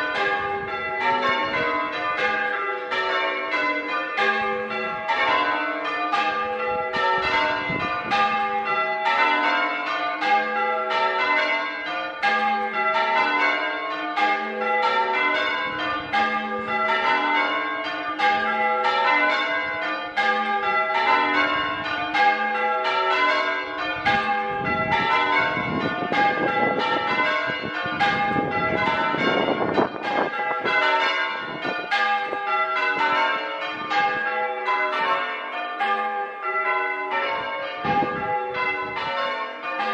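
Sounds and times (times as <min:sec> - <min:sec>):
church bells change ringing: 0:00.0 - 0:39.9.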